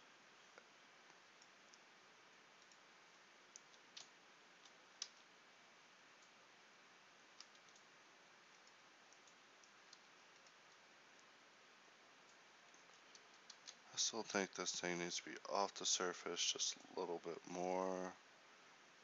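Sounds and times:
low steady hiss: 0.0 - 19.0
keyboard and mouse clicks: 7.4 - 7.9, 8.5 - 11.3, 12.3 - 13.8.

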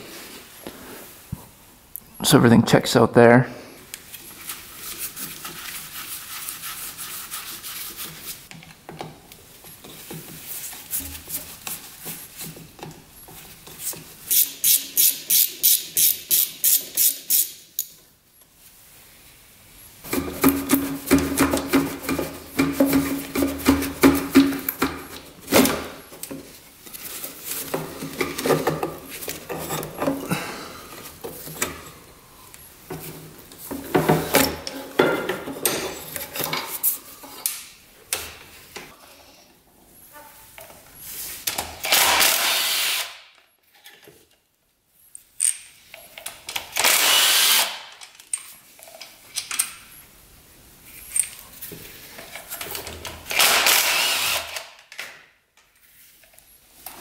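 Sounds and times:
handheld power tool running: 41.8 - 43.2, 46.8 - 47.8, 53.3 - 54.7.

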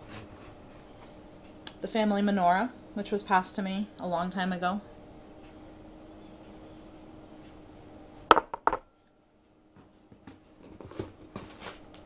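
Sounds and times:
object knocking on table: 8.3 - 8.8.

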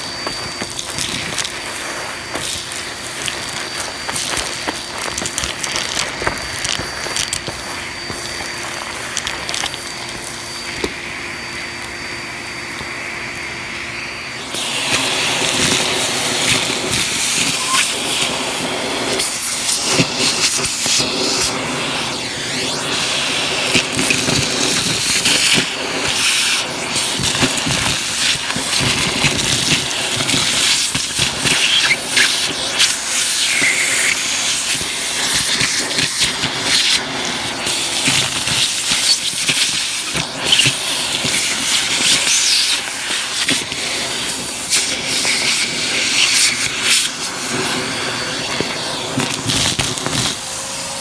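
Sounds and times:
debris rattling up vacuum tube: 0.0 - 10.5
vacuum cleaner running: 0.0 - 51.0.

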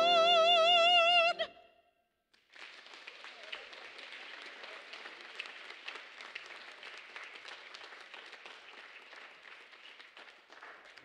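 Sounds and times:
congregation applauding: 2.4 - 11.0.

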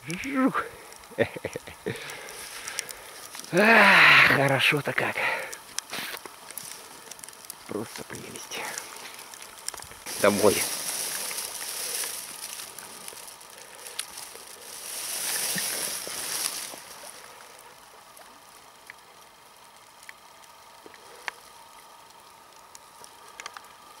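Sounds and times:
faint ticks: 0.9 - 3.6, 5.2 - 10.0, 16.4 - 24.0
river water splashing: 10.0 - 17.4.

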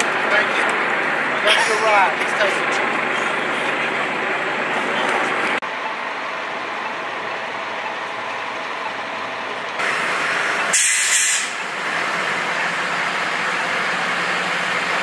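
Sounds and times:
vehicles on a city street: 0.0 - 15.0
short hiss: 10.7 - 11.6.

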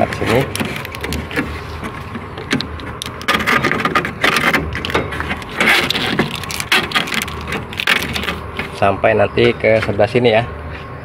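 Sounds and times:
wiring harness scratching and clicking: 0.0 - 8.8.

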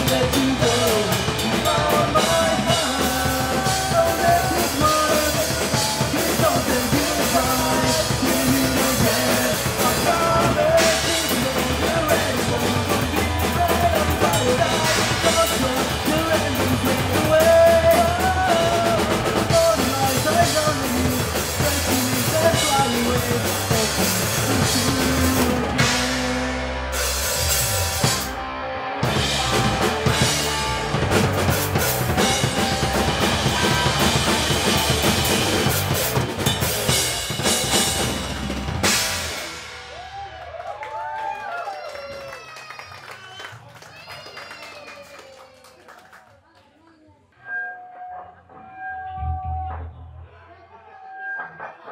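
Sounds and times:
person singing: 0.0 - 26.8, 32.1 - 35.6
bass guitar: 0.0 - 42.5, 47.4 - 51.9
drum kit: 0.0 - 42.5
electric guitar: 0.0 - 42.5.

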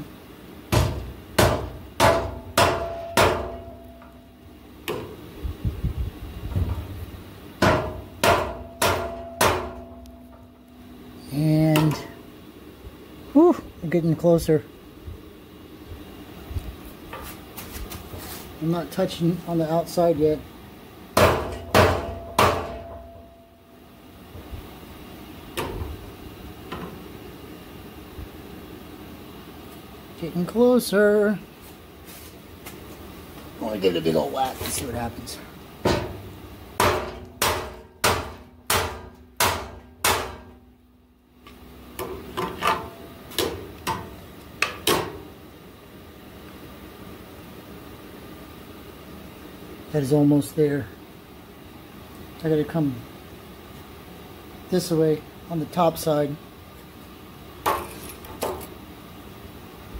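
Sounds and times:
low background hum: 0.0 - 59.9
metal knocking on steel brackets: 0.7 - 4.1, 7.6 - 10.5
hammer striking steel: 0.7 - 4.2, 7.6 - 10.6, 21.2 - 23.5, 36.8 - 40.6.

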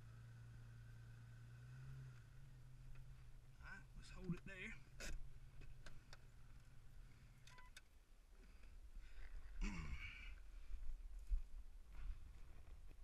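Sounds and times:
low hum: 0.0 - 13.0
man sighing: 9.6 - 10.4.

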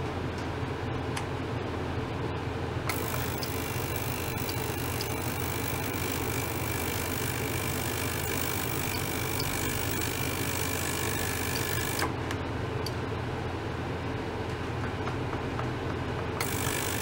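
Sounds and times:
ultrasonic cleaner humming: 2.9 - 12.2, 16.4 - 17.0.

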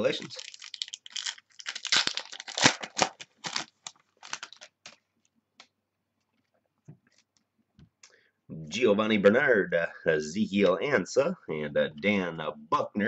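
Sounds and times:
wrapper crinkling and tearing: 0.0 - 5.0.

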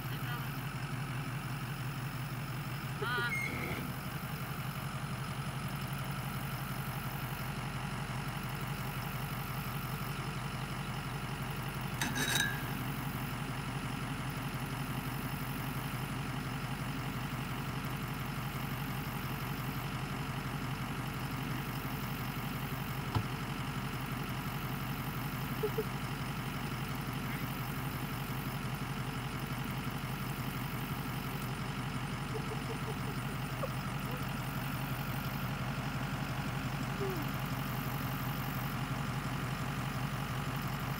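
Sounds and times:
truck engine idling: 0.0 - 40.9
metallic clank: 11.9 - 13.0.

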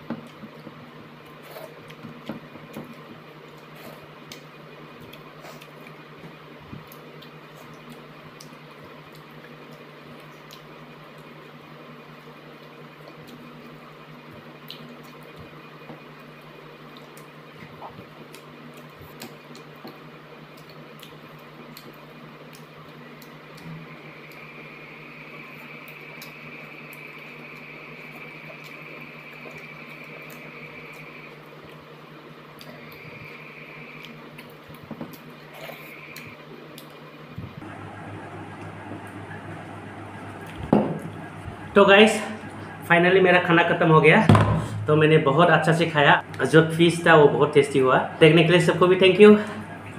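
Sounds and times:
chewing: 0.2 - 37.7
low hum: 19.4 - 49.9.

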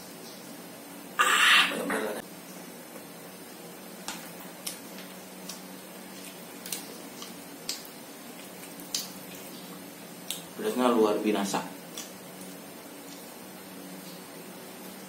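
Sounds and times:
steady low hiss: 0.0 - 15.0
wet chewing smacks: 4.6 - 10.5.

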